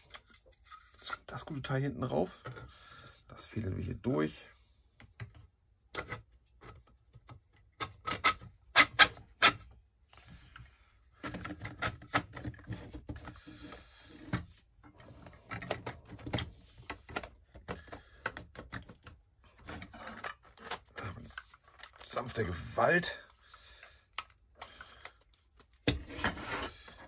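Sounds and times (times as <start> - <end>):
plastic parts clicking and knocking: 5.0 - 9.8, 10.4 - 22.5.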